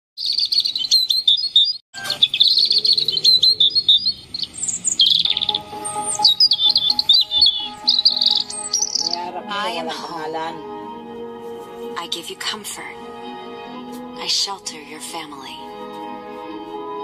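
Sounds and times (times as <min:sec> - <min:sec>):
birds chirping and tweeting: 0:00.2 - 0:09.4
soft music: 0:05.2 - 0:17.0.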